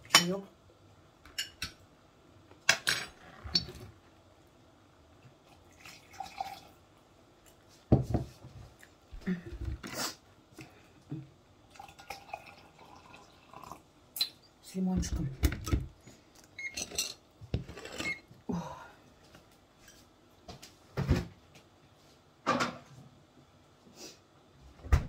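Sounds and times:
water pouring into a glass: 5.4s - 6.8s, 11.7s - 13.9s.

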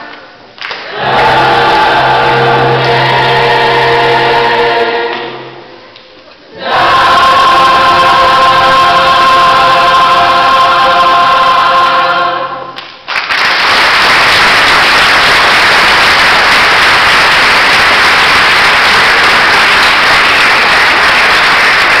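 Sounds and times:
choir singing held chord: 0.9s - 5.9s, 6.5s - 12.8s
audience applause: 13.0s - 22.0s.

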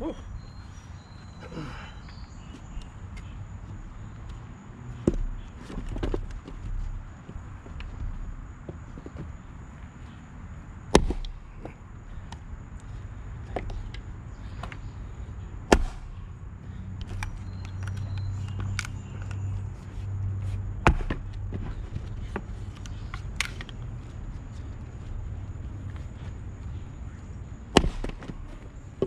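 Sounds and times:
axe splitting wood: 10.9s - 11.4s, 15.7s - 16.1s, 20.8s - 21.2s, 27.7s - 28.4s.

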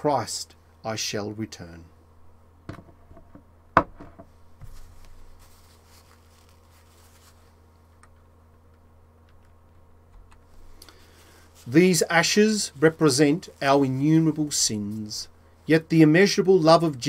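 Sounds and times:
steady low hum: 0.0s - 17.0s
faint rustling: 4.4s - 7.6s.

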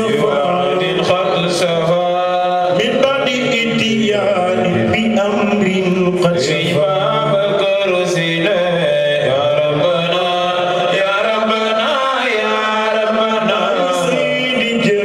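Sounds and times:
man chanting into a microphone: 0.0s - 15.0s.

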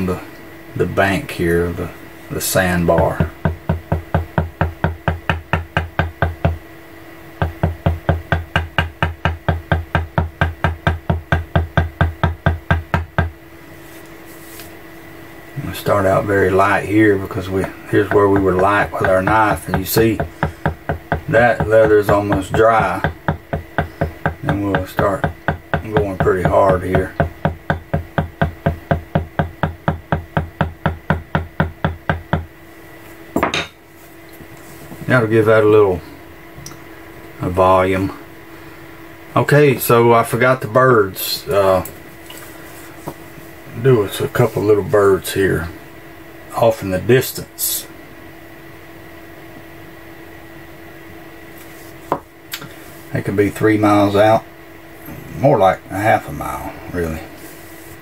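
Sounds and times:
wooden mallet tapping leather tool: 3.2s - 6.6s, 7.4s - 13.4s, 18.1s - 32.5s.

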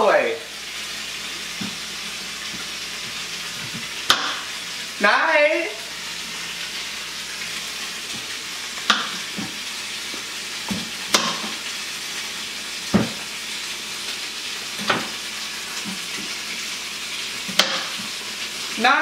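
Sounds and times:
oil sizzling in a frying pan: 0.0s - 19.0s
knife striking a cutting board: 4.1s - 4.4s, 8.9s - 9.6s, 10.7s - 11.6s, 12.9s - 13.2s, 17.6s - 17.9s.

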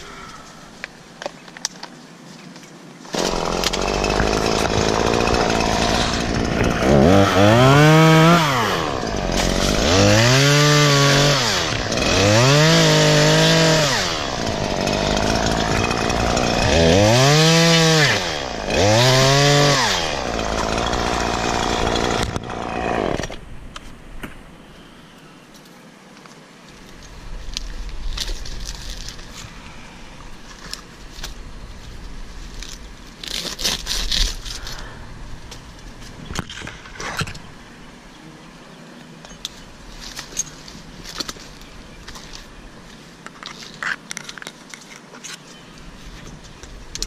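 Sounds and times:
chainsaw revving: 3.1s - 23.4s.

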